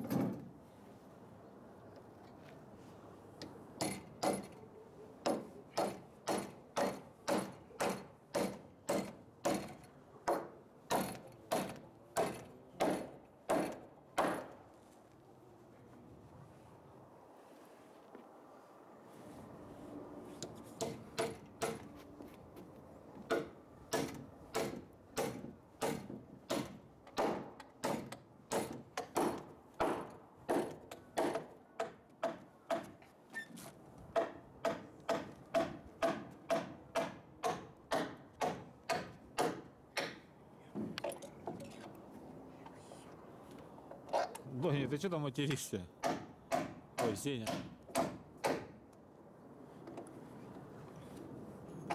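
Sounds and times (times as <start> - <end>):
hammer striking nails: 3.8 - 4.6, 5.2 - 14.6, 20.8 - 21.9, 23.3 - 33.0, 34.1 - 40.2, 46.0 - 48.8.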